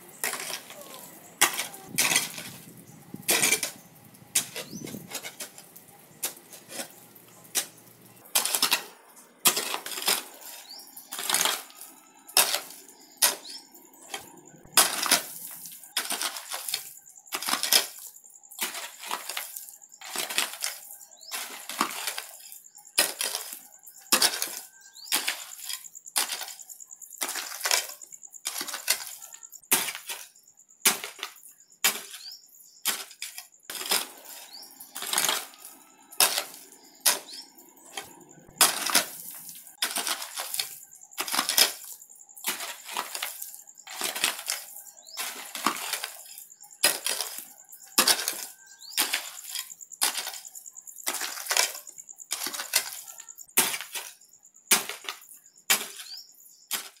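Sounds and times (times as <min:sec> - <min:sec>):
hoe striking rocky ground: 0:00.0 - 0:26.6, 0:27.2 - 0:57.0
loose soil and pebbles rattling: 0:00.0 - 0:57.0.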